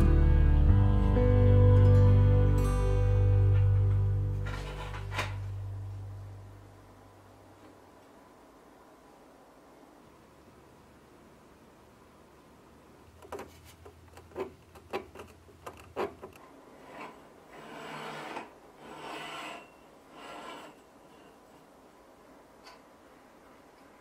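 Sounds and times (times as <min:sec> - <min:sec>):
sharp clicks and light knocks: 0:13.2 - 0:16.5
fitting scraping against pole: 0:13.2 - 0:21.6.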